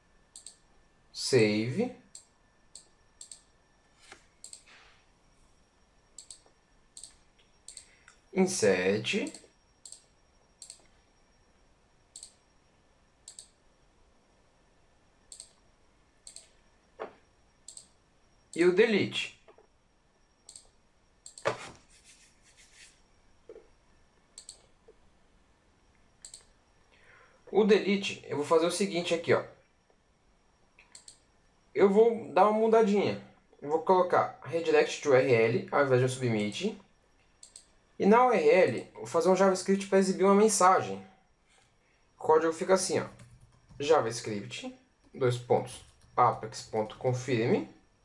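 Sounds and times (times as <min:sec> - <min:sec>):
computer mouse clicks: 0:00.3 - 0:00.6, 0:02.1 - 0:03.5, 0:04.1 - 0:04.7, 0:06.2 - 0:08.2, 0:09.2 - 0:10.9, 0:12.2 - 0:12.4, 0:13.2 - 0:13.6, 0:15.3 - 0:15.6, 0:16.2 - 0:16.6, 0:17.6 - 0:17.9, 0:20.4 - 0:21.6, 0:24.4 - 0:24.7, 0:26.2 - 0:26.6, 0:30.8 - 0:31.3, 0:37.4 - 0:37.8.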